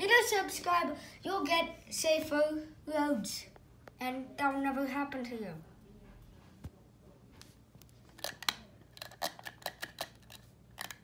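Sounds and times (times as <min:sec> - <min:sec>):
toy clicking and rattling: 0:08.2 - 0:11.0.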